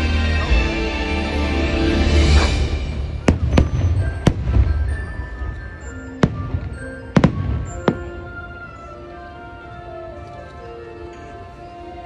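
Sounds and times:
show music: 0.0s - 12.0s
fireworks bursting in sharp bangs: 3.2s - 8.4s.

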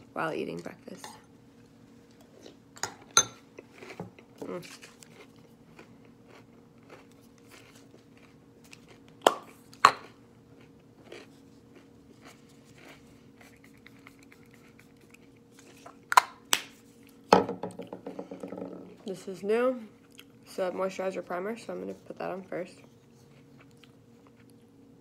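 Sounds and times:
steady low hum: 0.0s - 25.0s
soft chewing of food: 0.6s - 2.7s, 3.4s - 16.1s, 16.7s - 17.3s, 19.9s - 20.5s, 21.2s - 25.0s.

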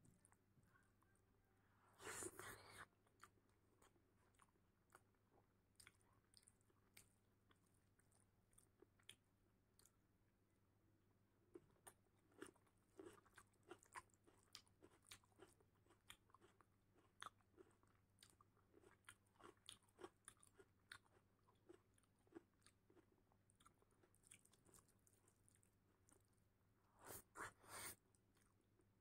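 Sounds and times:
chewing: 2.0s - 9.2s, 11.5s - 26.3s.

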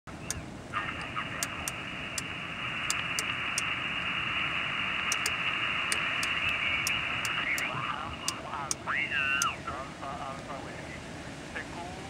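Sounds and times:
radio static hiss: 0.2s - 12.0s
faint voice over radio: 0.7s - 2.2s, 5.4s - 12.0s.

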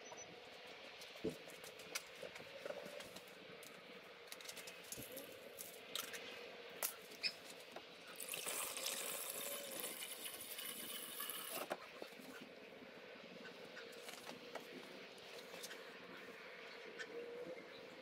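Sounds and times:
coolant pouring through funnel: 8.2s - 11.8s.

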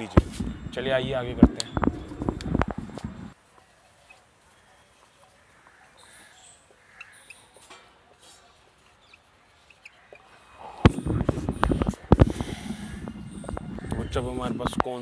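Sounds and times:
marker squeaking on whiteboard: 10.9s - 14.6s.

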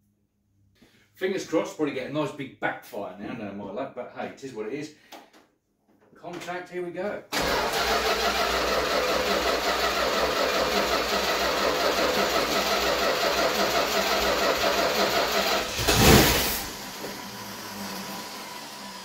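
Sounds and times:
engine cranking and firing: 7.3s - 17.6s.

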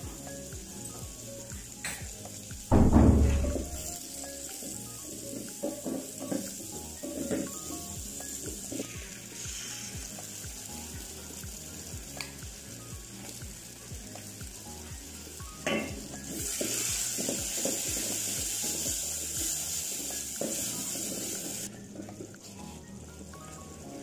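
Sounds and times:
background music with steady beat: 0.0s - 24.0s
vegetables frying in a pot: 0.0s - 24.0s
sharp knock: 2.7s - 3.8s.

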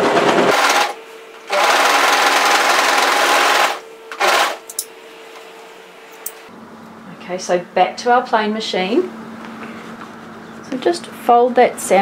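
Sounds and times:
overlocker sewing machine running: 0.0s - 4.6s.

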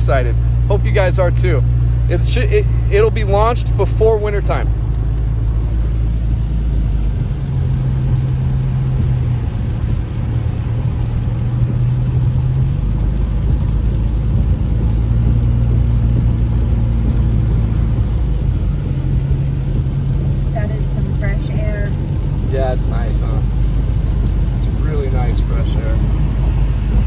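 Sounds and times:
low engine hum: 0.0s - 27.0s.

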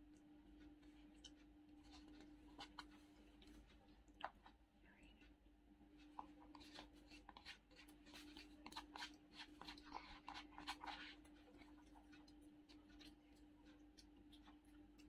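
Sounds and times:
faint hum: 0.0s - 15.0s
soft chewing: 0.0s - 15.0s
spoon scraping paper bucket: 1.7s - 3.7s, 6.0s - 15.0s.

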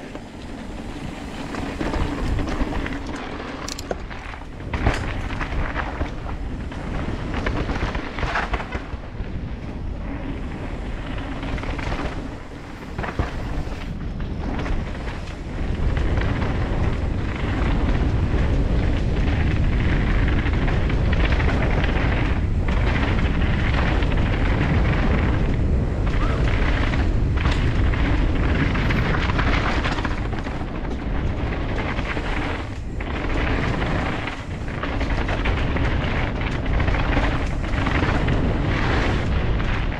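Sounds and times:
bike knocking over bumps: 0.0s - 9.8s
tyres rumbling over dirt: 0.0s - 39.9s
wind rushing over microphone: 0.0s - 39.9s.

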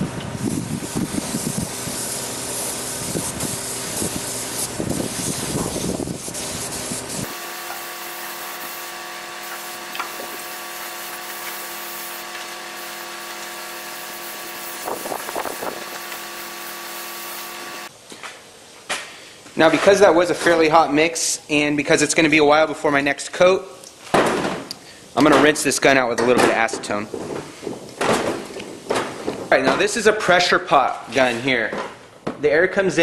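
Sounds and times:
wind rumble on microphone: 0.0s - 2.0s, 3.0s - 6.5s, 14.8s - 15.8s
steady mechanical hum: 0.0s - 33.0s
spray gun hissing: 0.4s - 17.9s.

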